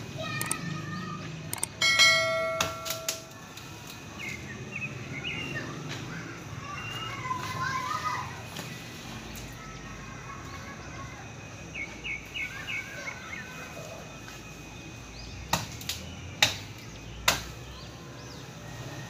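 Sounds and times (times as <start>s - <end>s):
bird chirping: 0.2s - 3.2s
leaf stalks snapping: 15.5s - 17.6s.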